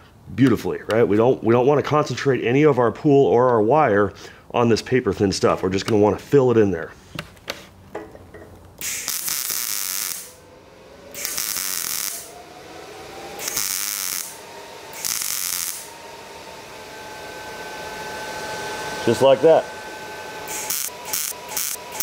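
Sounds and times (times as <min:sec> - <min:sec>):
welder arc crackling: 0:08.7 - 0:17.8, 0:20.3 - 0:22.0.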